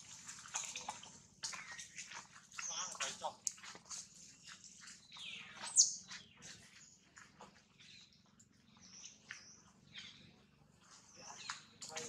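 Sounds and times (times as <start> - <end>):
animal chirps and squeaks: 4.2 - 6.8.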